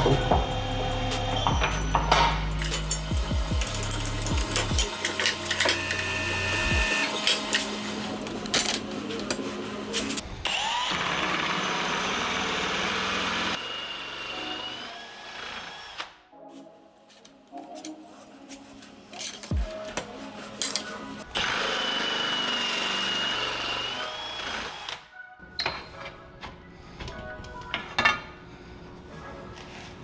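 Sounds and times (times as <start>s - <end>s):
metallic clanks and knocks: 1.4s - 3.2s
drill hole saw cutting metal tubing: 2.9s - 7.8s, 10.4s - 16.2s, 21.3s - 25.0s.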